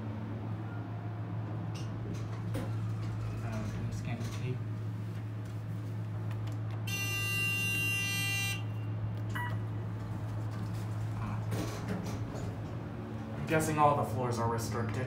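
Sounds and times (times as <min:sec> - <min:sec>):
low hum: 0:00.0 - 0:15.0
elevator buzzer tone: 0:06.8 - 0:09.6
short beep: 0:06.9 - 0:09.6.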